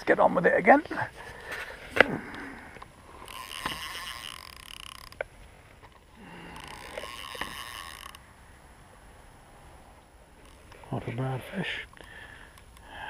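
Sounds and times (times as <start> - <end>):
fishing reel being wound: 2.2 - 5.3, 6.2 - 8.4, 10.4 - 10.9
sharp clicks of reel: 3.2 - 5.3, 6.5 - 8.2.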